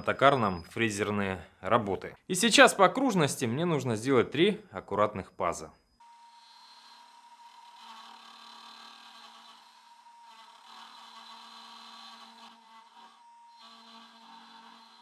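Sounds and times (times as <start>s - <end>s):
router motor whine: 6.0s - 15.0s.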